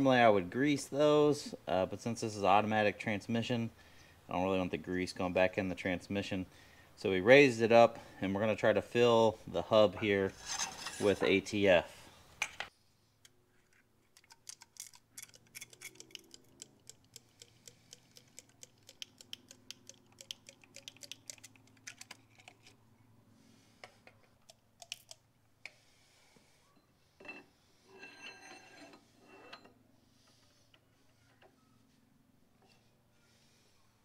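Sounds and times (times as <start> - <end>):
oil can pump clicking: 14.2 - 22.7, 24.4 - 25.8.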